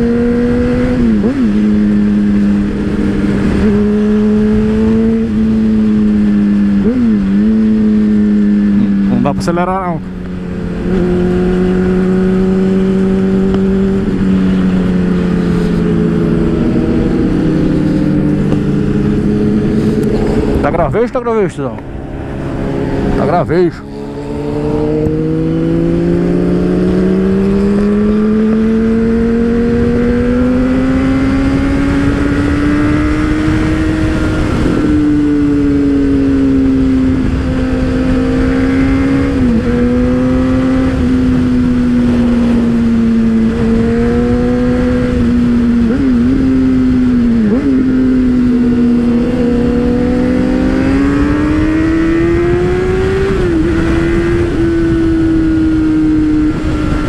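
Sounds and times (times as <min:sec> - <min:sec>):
motorcycle engine running: 0:00.0 - 0:21.1.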